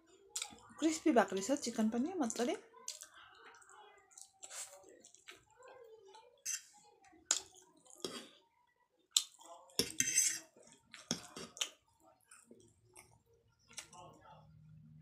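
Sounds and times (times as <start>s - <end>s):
wet chewing and slurping: 2.3s - 5.4s
fork scraping a plate: 6.4s - 6.8s, 8.0s - 8.4s, 9.8s - 11.6s.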